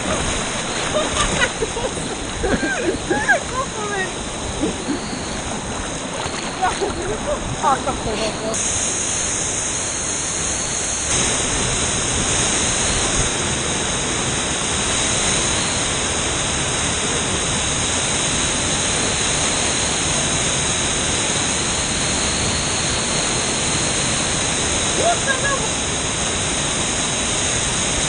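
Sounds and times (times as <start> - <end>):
rushing river and waterfalls: 0.0 - 8.5.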